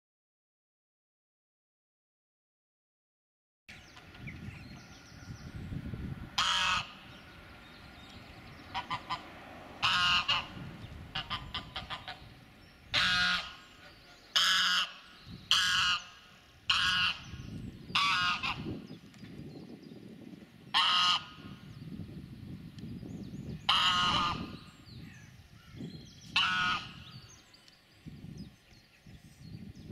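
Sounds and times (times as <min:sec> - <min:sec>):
goose honking: 0:06.4 - 0:07.0, 0:08.7 - 0:12.3, 0:12.9 - 0:18.7, 0:20.8 - 0:21.5, 0:23.7 - 0:24.6, 0:26.3 - 0:27.0.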